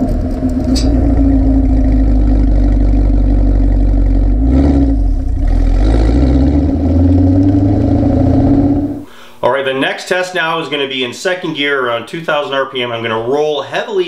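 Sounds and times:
road noise: 0:00.0 - 0:09.1
car exhaust low drone: 0:00.0 - 0:09.2.

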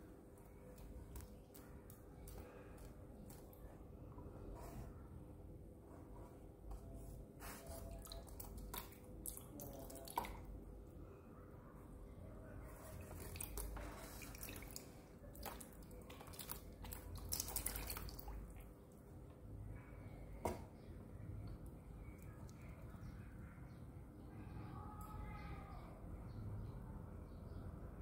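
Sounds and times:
faint steady hum: 0:00.0 - 0:28.0
water splashes and drips: 0:07.8 - 0:10.6, 0:13.0 - 0:18.7.

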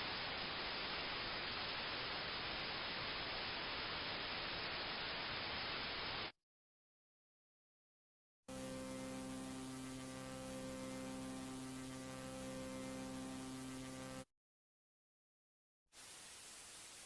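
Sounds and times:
tape hiss: 0:00.0 - 0:06.3, 0:08.5 - 0:14.3, 0:16.0 - 0:17.0
electrical hum: 0:08.5 - 0:14.2.

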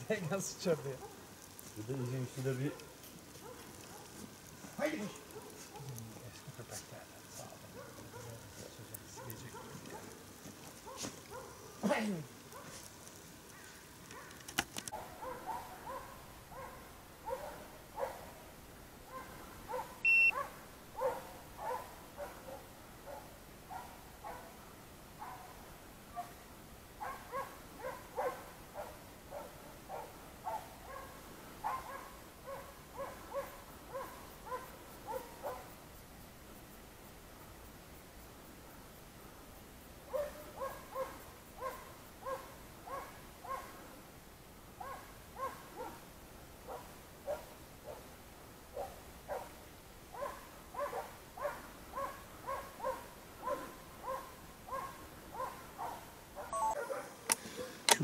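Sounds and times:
hounds baying: 0:07.3 - 0:11.8, 0:14.1 - 0:18.4, 0:19.1 - 0:24.6, 0:27.0 - 0:35.7, 0:40.1 - 0:43.9, 0:44.8 - 0:46.1, 0:50.2 - 0:57.9.

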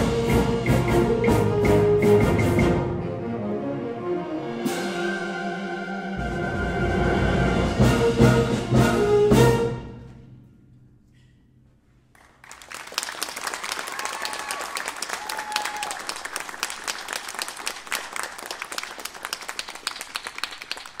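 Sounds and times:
audience applause: 0:12.2 - 0:21.0
audience cheering: 0:12.7 - 0:19.1.

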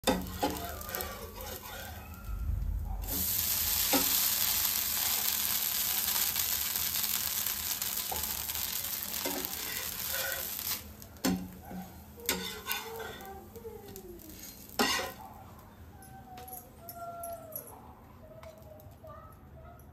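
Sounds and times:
metal spatula scraping pan: 0:00.0 - 0:02.3, 0:09.2 - 0:11.4, 0:12.2 - 0:13.3, 0:14.3 - 0:15.2
flatbread sizzling on hot pan: 0:00.0 - 0:15.2.

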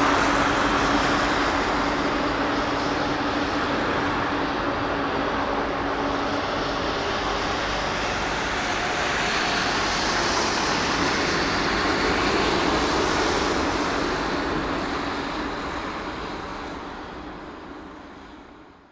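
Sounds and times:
jet engines roaring: 0:00.0 - 0:18.1.

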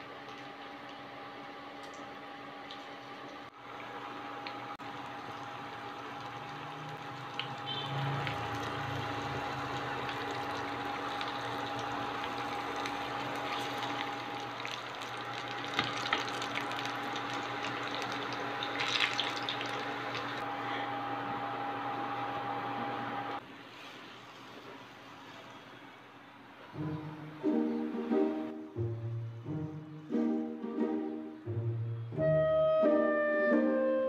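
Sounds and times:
electrical hum: 0:00.0 - 0:23.4
batter sizzling in hot oil: 0:03.6 - 0:20.4.

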